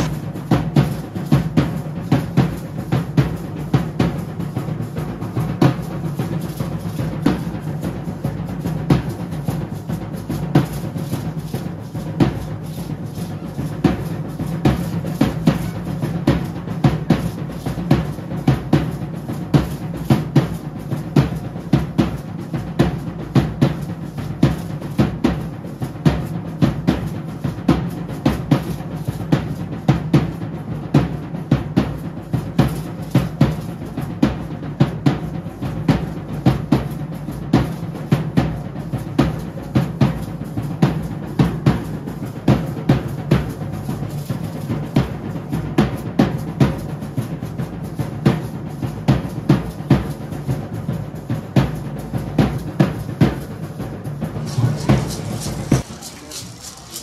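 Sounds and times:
drum beating dance rhythm: 0.0 - 0.8, 54.1 - 57.0.

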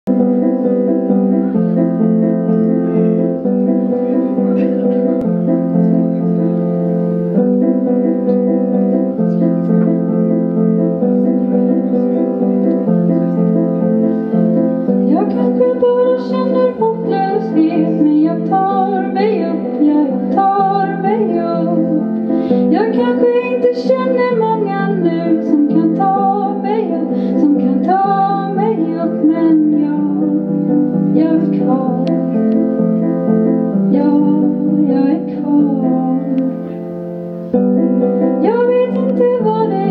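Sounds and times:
keyboard chords: 0.1 - 39.9
woman singing: 15.1 - 30.5, 31.1 - 32.4, 33.9 - 36.6, 38.2 - 39.9.

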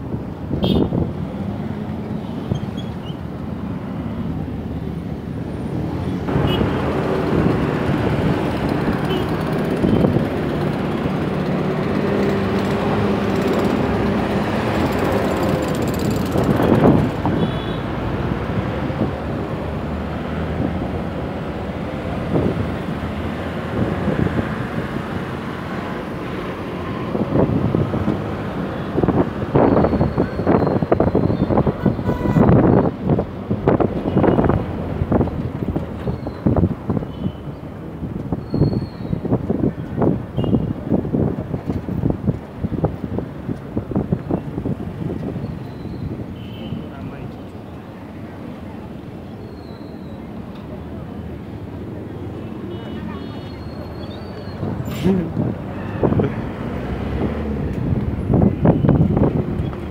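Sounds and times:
heavy vehicle engine hum: 0.0 - 46.2, 47.1 - 59.9
vehicles passing: 0.0 - 59.9.

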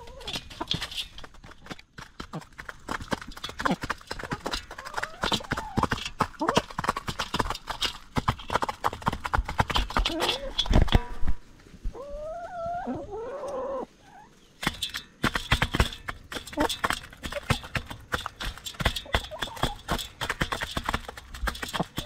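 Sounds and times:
hens calling: 0.0 - 1.0, 3.6 - 6.7, 10.0 - 11.2, 11.8 - 14.5
beaks pecking at food: 0.0 - 10.7, 14.6 - 22.0.

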